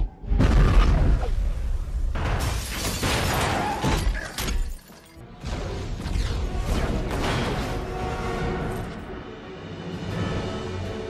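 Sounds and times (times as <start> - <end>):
explosion: 0.0 - 3.6
orchestral score: 5.4 - 11.0.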